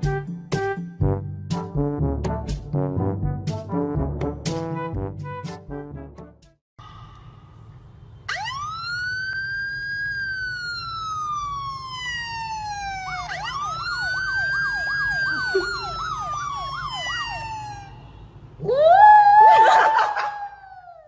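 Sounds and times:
siren wailing: 8.3 - 21.0
siren yelp: 8.3 - 21.0.

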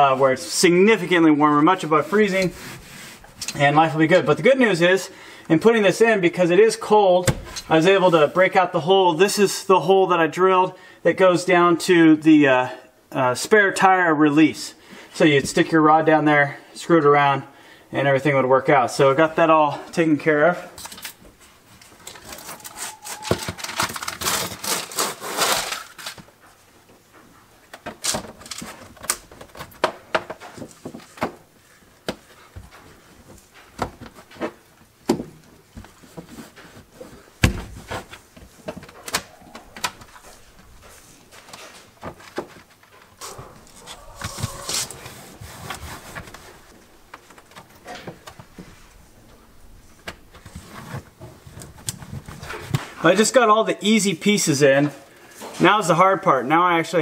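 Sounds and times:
backing paper rustling: 20.8 - 26.7, 27.9 - 49.0.

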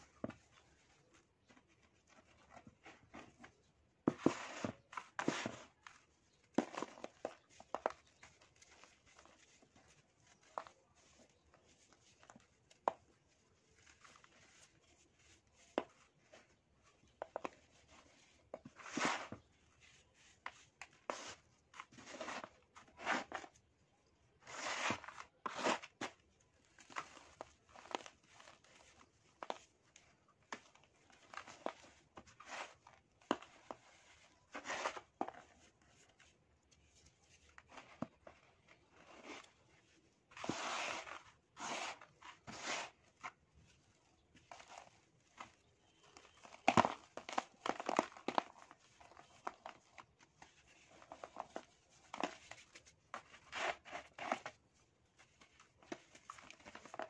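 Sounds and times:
dry sand sifted by hand: 40.3 - 43.2.

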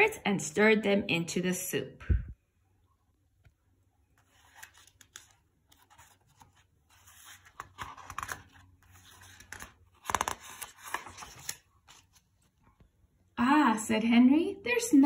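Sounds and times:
paper page rustling: 4.1 - 12.8.

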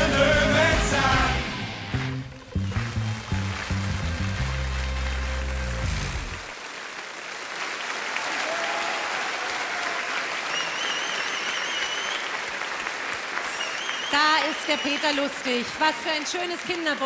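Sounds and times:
live band bass note: 0.0 - 6.5
crowd applauding: 1.2 - 17.0.

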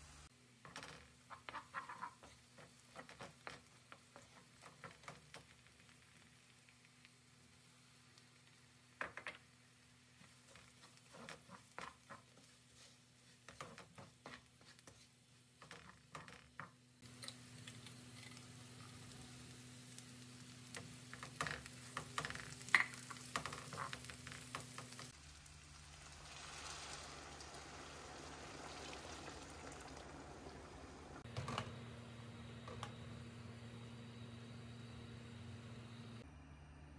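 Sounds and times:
sizzling and bubbling: 0.0 - 36.2
wooden spoon stirring in pot: 1.0 - 5.8, 10.2 - 25.2
water poured into hot pot: 25.4 - 30.9.

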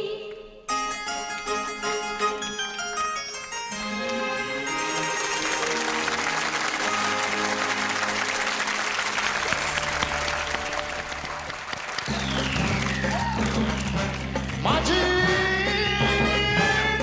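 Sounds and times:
instrumental music with held notes: 0.7 - 17.0
audience applauding: 3.8 - 15.6.

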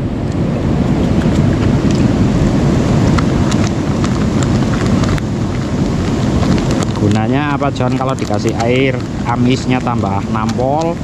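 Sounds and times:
river water rushing: 0.0 - 11.0
plastic bag crinkling: 2.9 - 11.0.

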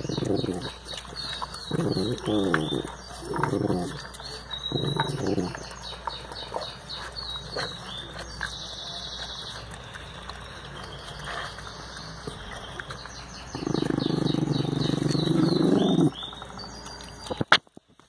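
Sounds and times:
dogs licking ice: 0.0 - 17.5
birds chirping: 0.0 - 17.8.

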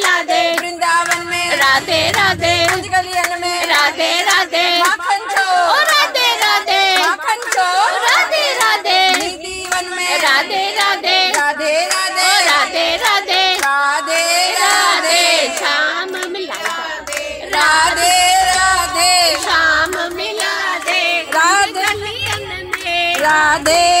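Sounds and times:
woman singing into karaoke microphone: 0.0 - 24.0
hand clapping: 3.1 - 12.1, 15.5 - 24.0.

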